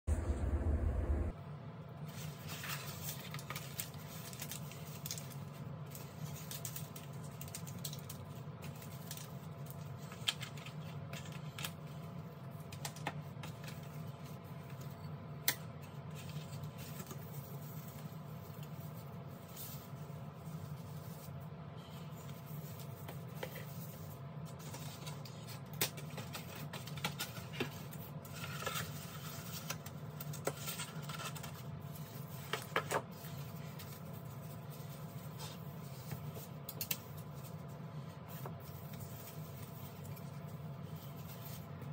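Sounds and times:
steady low hum: 0.0 - 3.8.

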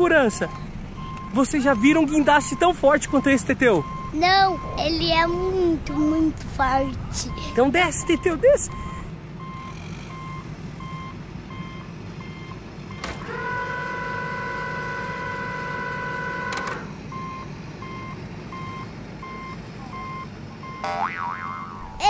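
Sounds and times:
low engine hum: 0.0 - 22.0
toy reversing alarm beeps: 0.4 - 4.9, 7.3 - 13.1, 17.1 - 21.0.

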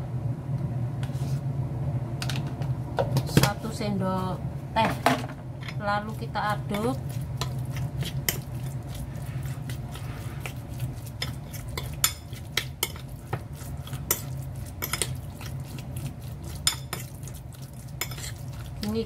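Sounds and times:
steady low hum: 0.0 - 19.0
spoon stirring in ceramic bowl: 5.6 - 19.0.

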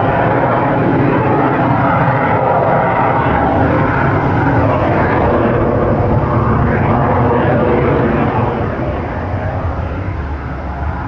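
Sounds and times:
aircraft flying past: 0.0 - 11.0.

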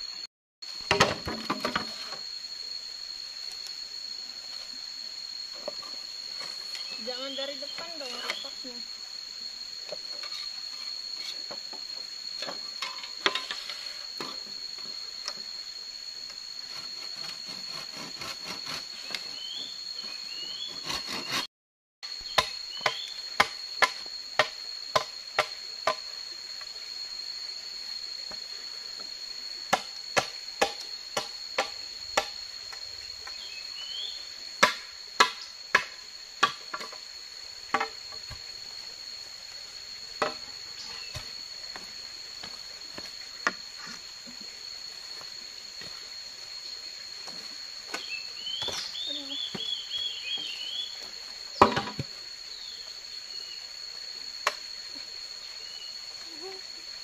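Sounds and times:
high insect drone: 0.0 - 57.0
machete chopping bamboo: 29.7 - 32.4, 34.6 - 37.0.

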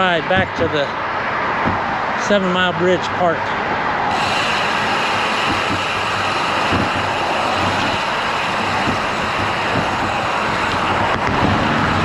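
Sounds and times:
road traffic rushing: 0.0 - 12.0
wind: 0.0 - 12.0.

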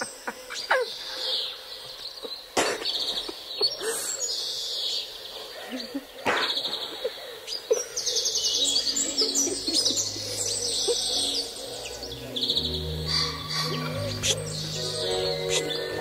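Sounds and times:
birds chirping: 0.0 - 16.0
low sustained music tones: 7.9 - 16.0.

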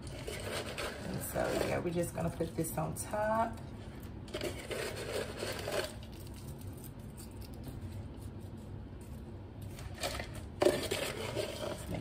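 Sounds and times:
fried onions rustling and rattling: 0.0 - 1.9, 4.3 - 8.6, 9.7 - 12.0.

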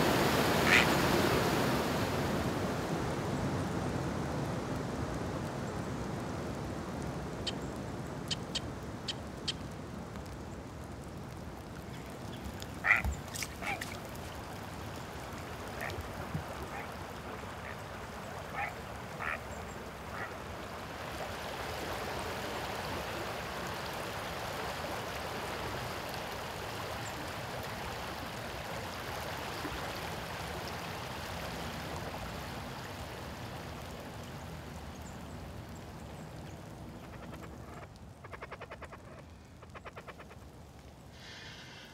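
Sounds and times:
creek water flowing: 0.0 - 41.9
quacking bird calls: 0.6 - 0.9, 12.8 - 14.0, 18.5 - 19.4, 37.0 - 40.4.

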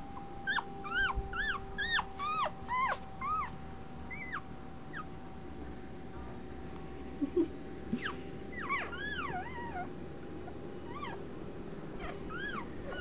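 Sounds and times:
faint hum: 0.0 - 13.0
puppy squeaking and whimpering: 0.4 - 5.1, 8.0 - 11.2, 12.0 - 13.0.

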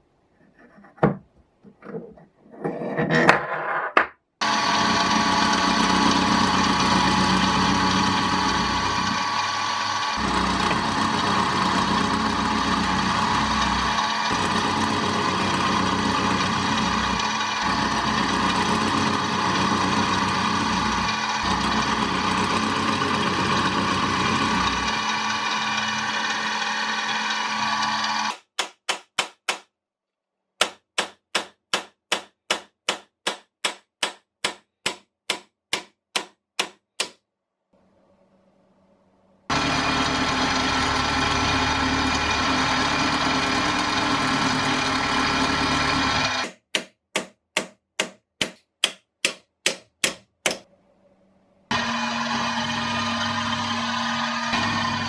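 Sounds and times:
drill press drilling metal: 4.4 - 28.4, 39.5 - 46.5, 51.7 - 55.0
hammer tapping pin punch: 30.6 - 37.2, 46.4 - 50.6.

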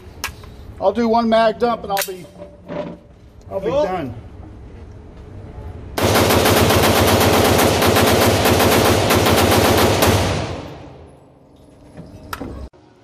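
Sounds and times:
rapid rifle shots echoing indoors: 6.0 - 11.1.

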